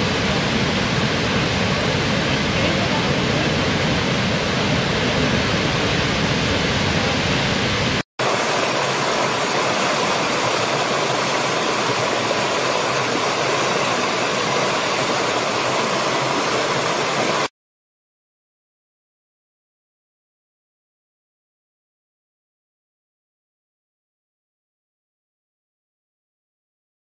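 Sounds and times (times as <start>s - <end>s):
stream cascading over rocks: 0.0s - 4.0s, 7.0s - 17.5s
large waterfall rushing: 0.0s - 17.5s.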